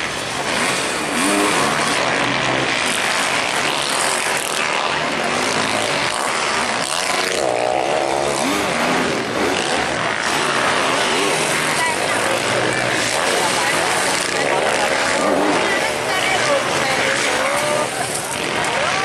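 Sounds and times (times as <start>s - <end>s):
motocross bike engines revving: 0.0s - 19.0s.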